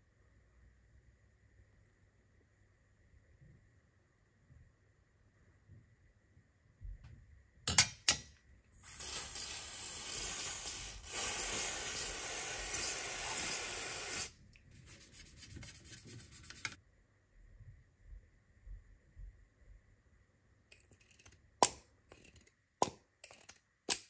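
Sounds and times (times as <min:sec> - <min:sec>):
aerosol spraying hiss: 0:08.8 - 0:16.0
toothbrush scrubbing metal: 0:08.8 - 0:16.8.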